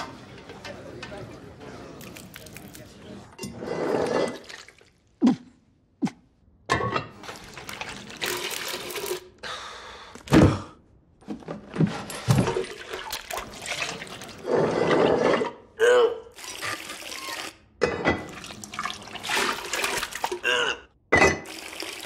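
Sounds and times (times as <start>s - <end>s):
liquid sloshing and pouring: 4.0s - 5.0s, 7.2s - 9.2s, 12.3s - 15.1s, 18.2s - 20.4s.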